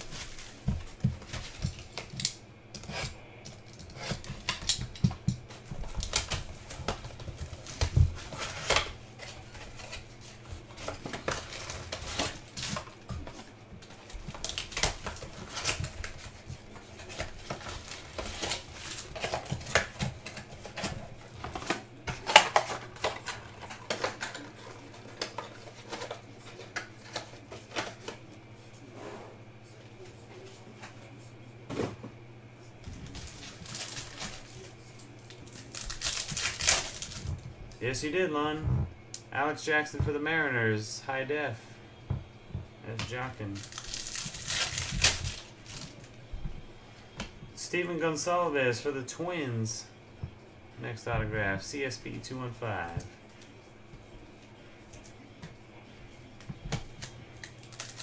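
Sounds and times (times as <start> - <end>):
cardboard rustling: 0.0 - 2.2, 4.1 - 28.3, 32.9 - 37.7, 43.1 - 47.6
card packs set down: 3.6 - 28.2, 32.9 - 38.0, 42.9 - 46.1
plastic shrink-wrap crinkling: 33.0 - 37.4, 43.5 - 46.1, 56.9 - 58.0.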